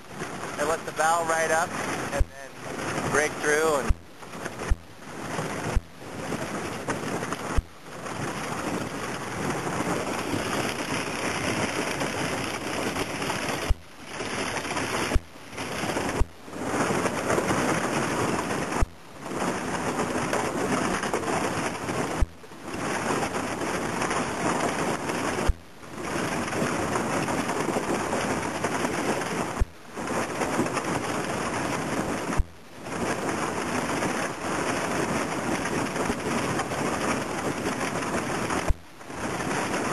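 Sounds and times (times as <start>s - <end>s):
ice crunching against boat: 0.3s - 39.9s.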